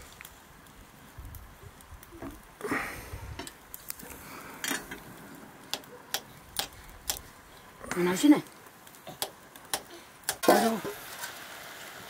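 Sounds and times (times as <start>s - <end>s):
sharp clicks: 5.7s - 7.3s.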